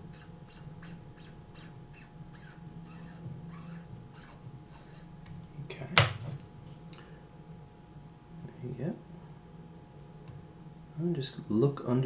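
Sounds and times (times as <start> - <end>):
scratchy winding of watch rotor: 0.0 - 5.2.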